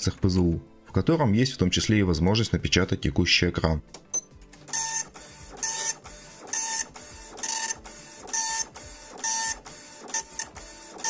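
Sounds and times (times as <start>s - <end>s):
dot-matrix printer head buzzing: 4.7s - 11.0s.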